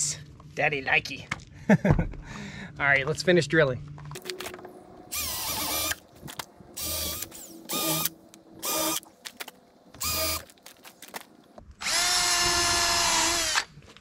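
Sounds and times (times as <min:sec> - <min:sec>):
cordless drill whining: 0:05.1 - 0:06.0, 0:06.8 - 0:09.1, 0:10.0 - 0:10.5, 0:11.8 - 0:13.7.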